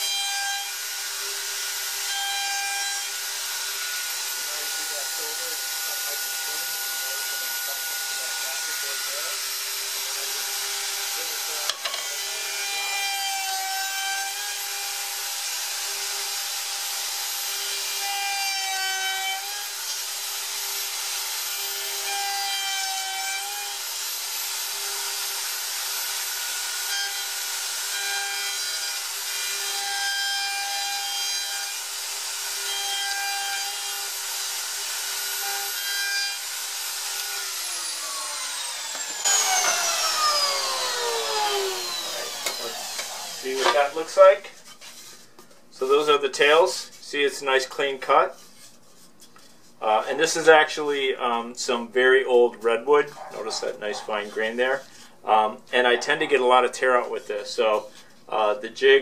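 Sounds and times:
router whining while cutting wood: 0.0s - 44.3s
router motor winding down: 3.9s - 12.6s, 36.4s - 44.0s.

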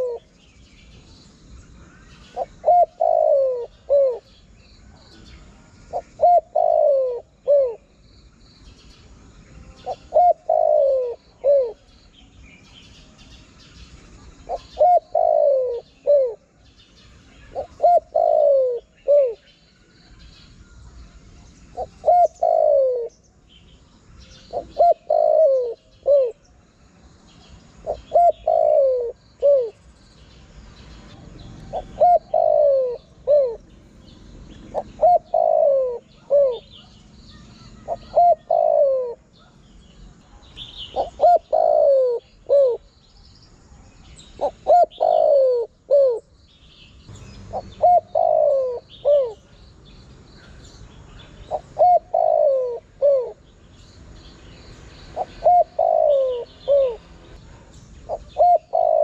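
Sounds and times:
dove cooing: 0.0s - 0.4s, 1.9s - 4.4s, 5.9s - 7.9s, 9.8s - 11.9s, 14.4s - 16.6s, 17.4s - 19.5s, 21.7s - 23.2s, 24.4s - 26.5s, 27.6s - 29.9s, 31.3s - 33.7s, 34.6s - 39.6s, 40.5s - 42.9s, 44.2s - 46.3s, 47.2s - 49.5s, 50.5s - 53.5s, 55.1s - 59.0s
small birds chirping: 0.0s - 59.0s.

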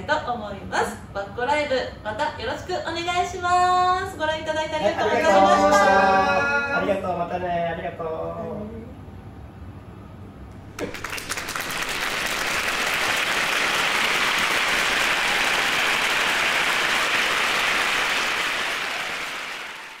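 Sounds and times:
crowd applause: 10.7s - 20.0s.

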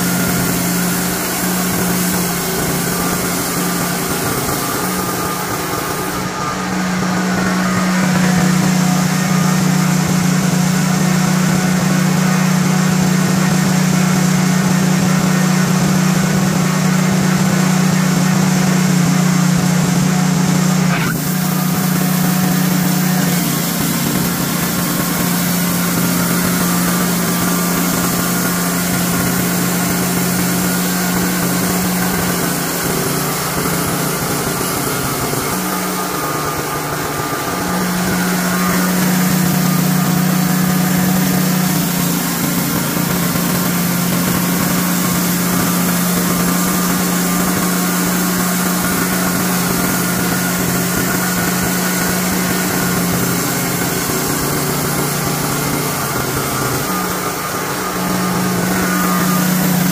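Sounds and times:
band blade sawing wood: 0.0s - 11.9s, 19.7s - 59.9s
sawmill engine running: 0.0s - 59.9s.

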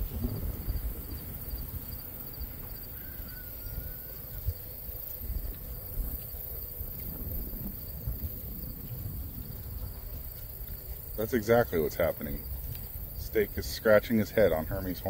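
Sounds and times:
insects chirping: 0.0s - 15.0s
wind rumbling on microphone: 0.0s - 15.0s
faint bird call: 2.8s - 4.5s.

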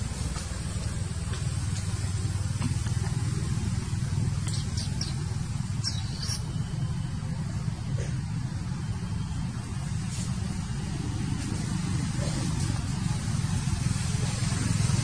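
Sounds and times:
low outdoor rumble: 0.0s - 15.0s
faint high chirps: 4.3s - 8.3s.

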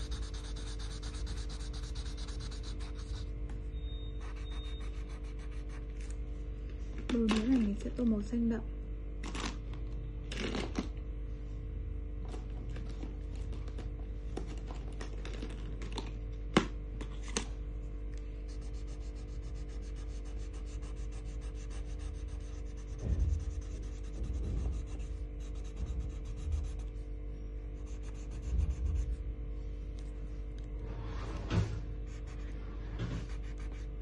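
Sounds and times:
colouring tool scratching paper: 0.0s - 3.3s, 4.2s - 6.1s, 18.5s - 27.0s, 27.8s - 29.2s, 32.1s - 34.0s
low electrical hum: 0.0s - 34.0s.

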